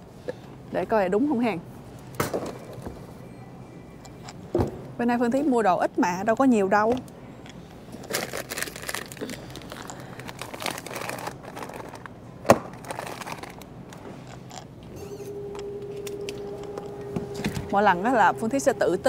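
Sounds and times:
plastic bags crinkling: 8.0s - 14.6s
steady tone: 14.9s - 19.0s.

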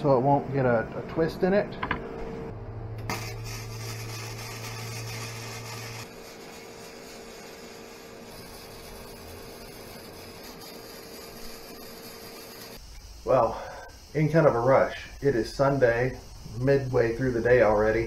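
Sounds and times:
low hum: 0.4s - 6.0s
welding arc crackling and hissing: 3.0s - 18.0s.

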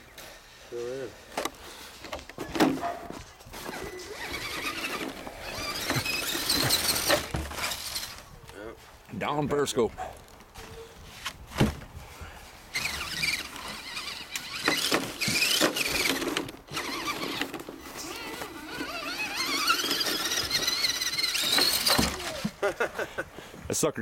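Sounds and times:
electric motor whine: 12.7s - 22.5s.

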